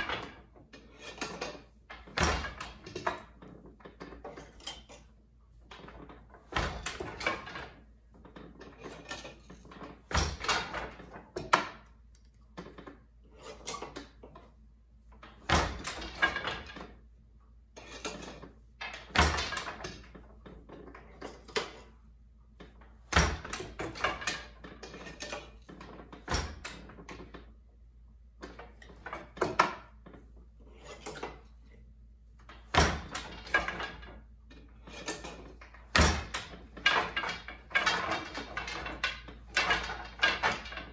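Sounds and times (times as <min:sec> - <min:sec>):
loom beater knocking: 0:00.0 - 0:04.6, 0:05.7 - 0:11.9, 0:15.5 - 0:16.9, 0:18.0 - 0:20.3, 0:23.1 - 0:27.4, 0:32.7 - 0:34.2, 0:34.8 - 0:40.9.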